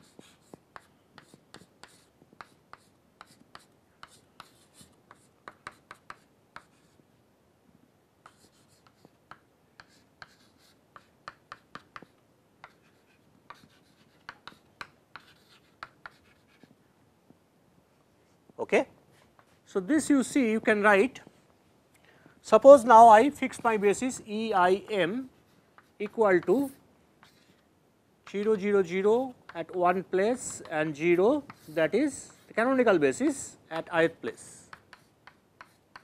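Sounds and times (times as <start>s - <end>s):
chalk tapping and scratching: 0.0s - 7.0s, 8.2s - 16.8s, 19.1s - 19.7s, 23.4s - 36.0s.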